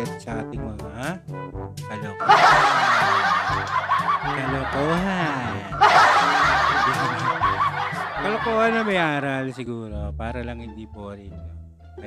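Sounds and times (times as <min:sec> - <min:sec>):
canned crowd laughter: 0:02.2 - 0:09.2.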